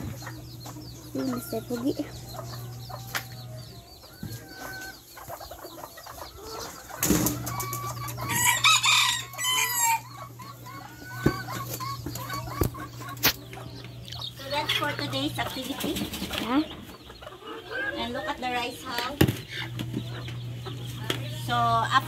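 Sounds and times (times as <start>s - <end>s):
chickens clucking: 0.0s - 22.0s
steady low hum: 0.0s - 22.0s
rooster crowing loudly: 8.3s - 10.1s.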